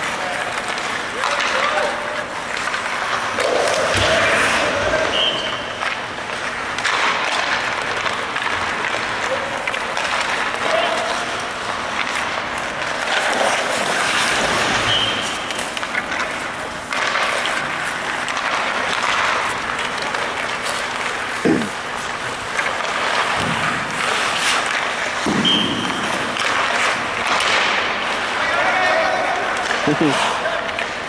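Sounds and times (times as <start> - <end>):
skates scraping on ice: 0.0 - 31.0.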